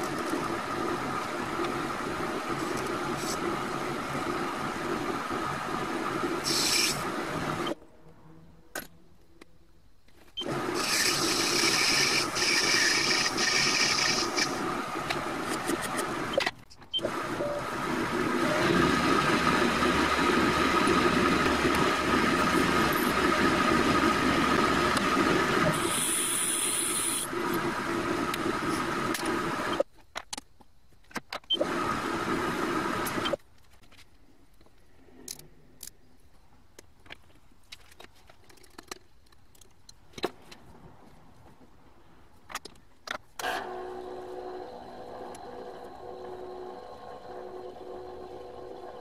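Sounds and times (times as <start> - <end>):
metal lathe humming: 10.4 - 16.3, 17.1 - 29.8, 43.6 - 49.0.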